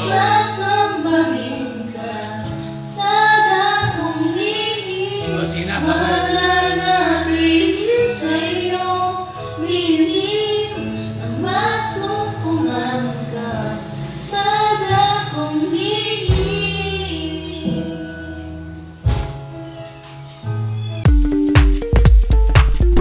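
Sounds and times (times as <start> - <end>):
woman singing: 0.0 - 18.5
instrumental backing track: 0.0 - 23.0
man singing: 5.2 - 7.6.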